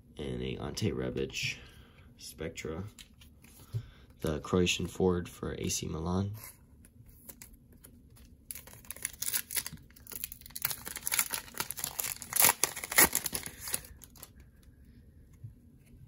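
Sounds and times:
plastic wrapper crinkling and tearing: 8.2 - 14.4.

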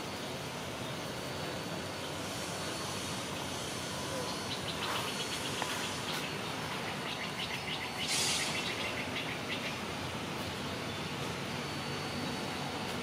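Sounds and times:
outdoor background noise: 0.0 - 13.0
small bird twittering: 3.4 - 9.9
brief hissing rush: 8.0 - 8.8.

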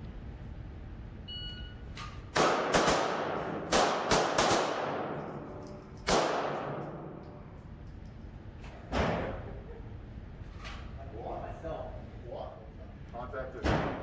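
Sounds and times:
handgun shots echoing: 2.4 - 7.4.

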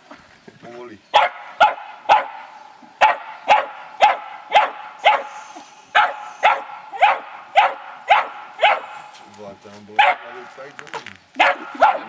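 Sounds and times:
dog barking: 1.1 - 2.4, 3.0 - 9.0, 10.0 - 10.5, 11.4 - 12.0.

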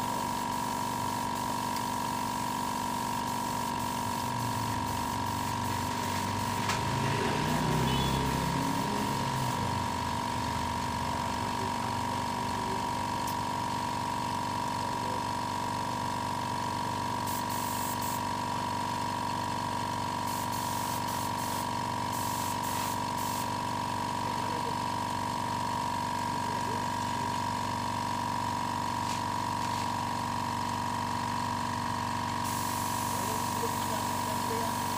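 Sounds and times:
air compressor whine: 0.0 - 34.9
spray gun hissing: 17.3 - 18.2, 20.3 - 23.5, 32.4 - 34.9.

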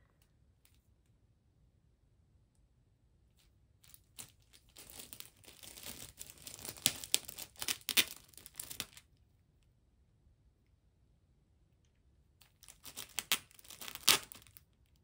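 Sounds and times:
plastic bag crinkling: 3.9 - 9.0, 12.6 - 14.6.

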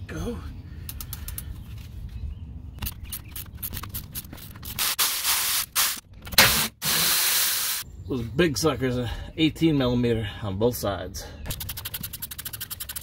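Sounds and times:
pneumatic air ratchet hissing: 4.7 - 7.8.

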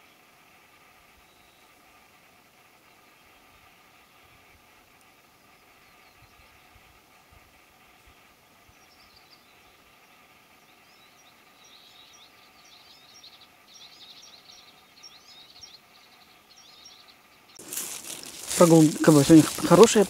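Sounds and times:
forest ambience: 0.0 - 20.0
songbird chirping: 10.6 - 20.0
handling noise rustling: 17.6 - 20.0.

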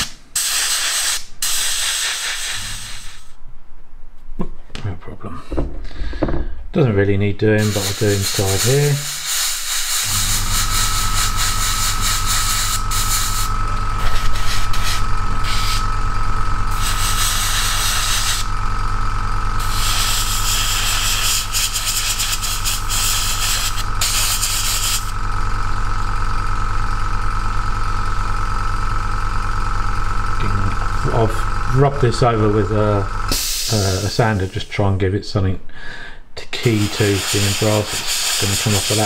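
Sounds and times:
airbrush spray hissing: 0.0 - 3.4, 7.6 - 15.9, 16.7 - 18.5, 19.6 - 25.2, 33.3 - 34.8, 36.6 - 39.0
compressor motor humming: 5.5 - 39.0.

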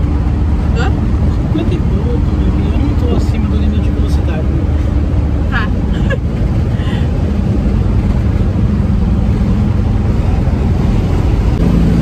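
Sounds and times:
road and wind noise: 0.0 - 12.0
van engine running: 0.0 - 12.0.

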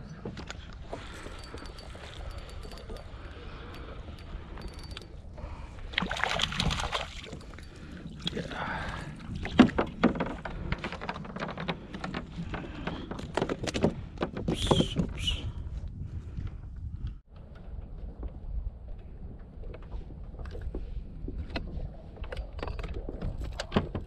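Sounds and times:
water splashing: 5.8 - 9.7
knocks and clatter on a kayak: 9.2 - 15.3, 17.2 - 24.0.

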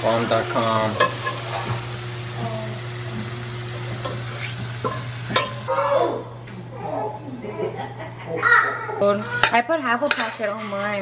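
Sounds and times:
food sizzling in frying pan: 0.0 - 5.7.

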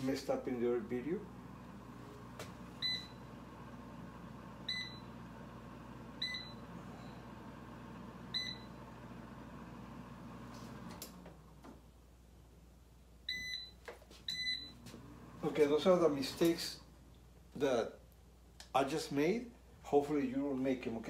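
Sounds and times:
oven fan humming: 0.3 - 12.0.

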